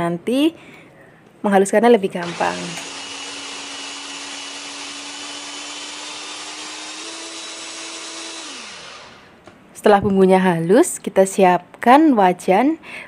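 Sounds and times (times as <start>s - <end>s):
electric food chopper motor humming: 2.2s - 9.4s.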